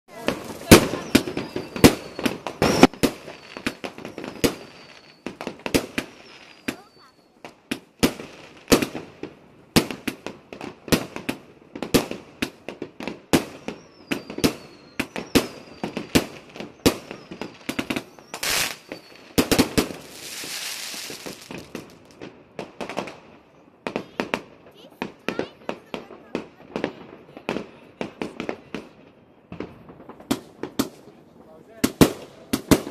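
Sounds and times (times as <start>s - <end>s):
firework crackling hiss: 0.1s - 7.0s, 13.5s - 22.2s
firework shells bursting: 0.2s - 7.0s, 13.5s - 23.2s.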